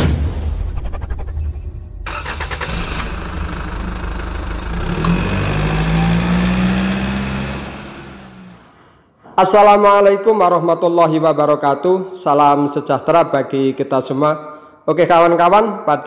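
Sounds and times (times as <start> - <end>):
car engine starting and revving: 2.1 - 8.8.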